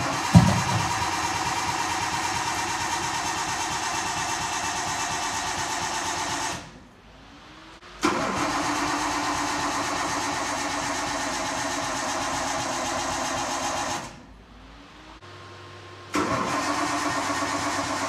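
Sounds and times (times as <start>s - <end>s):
car engine idling high: 0.0s - 6.0s.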